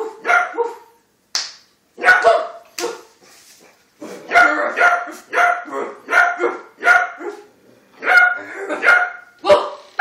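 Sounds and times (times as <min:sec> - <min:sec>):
puppy barking: 0:00.0 - 0:01.0, 0:02.0 - 0:03.2, 0:04.3 - 0:09.9.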